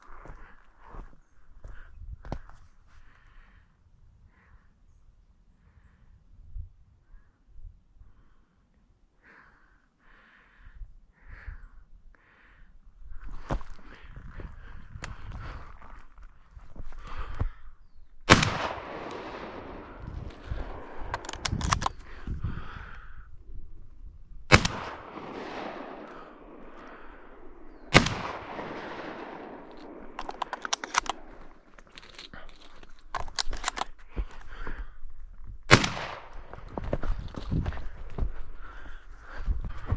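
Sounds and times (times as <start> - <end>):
person breathing: 0.0 - 4.9, 7.0 - 18.0, 18.8 - 23.8, 24.9 - 35.4, 36.5 - 39.9
shotgun shots with echo: 18.3 - 21.2, 24.5 - 30.2, 35.7 - 36.5
quick clicks and rattles: 30.2 - 31.2.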